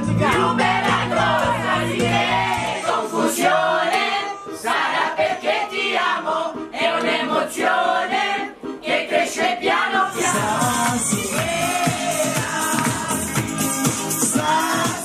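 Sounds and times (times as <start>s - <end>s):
group singing into microphones: 0.0s - 15.0s.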